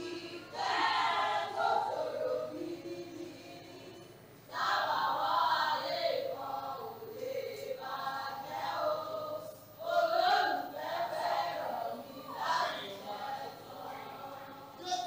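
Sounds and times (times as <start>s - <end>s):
group of voices singing: 0.0s - 15.0s.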